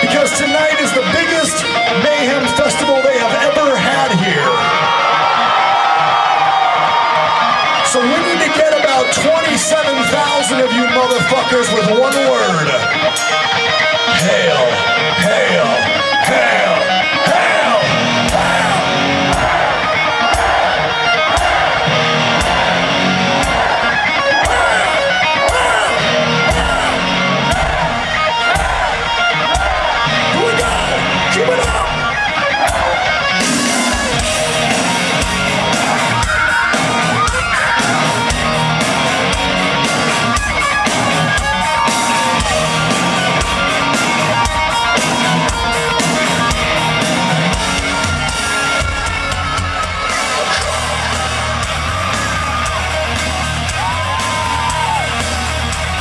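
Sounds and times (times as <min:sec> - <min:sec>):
crowd yelling: 0:00.0 - 0:56.0
heavy metal band playing live: 0:00.0 - 0:56.0
heavy bass line: 0:14.0 - 0:56.0.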